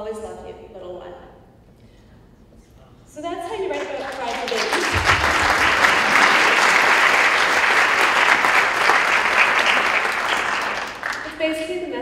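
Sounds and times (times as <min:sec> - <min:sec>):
audience applauding: 0:03.7 - 0:11.4.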